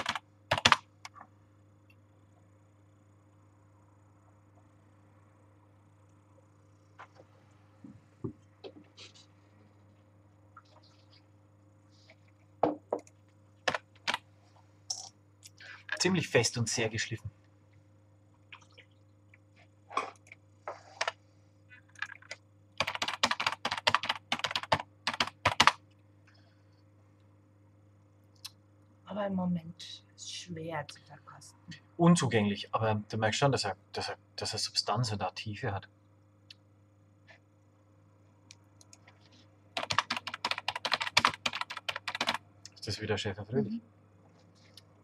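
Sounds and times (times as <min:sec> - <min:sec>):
typing on computer keyboard: 0:00.0 - 0:01.2, 0:13.6 - 0:14.2, 0:22.0 - 0:25.8, 0:39.8 - 0:42.4
faint electrical hum: 0:00.0 - 0:45.0
soft noises: 0:06.0 - 0:12.6.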